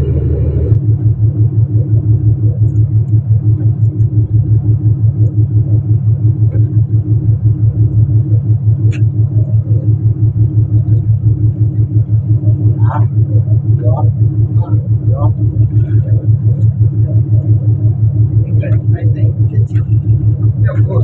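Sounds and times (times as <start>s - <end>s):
boat engine throbbing: 0.0s - 21.0s
sharp click: 8.9s - 9.2s.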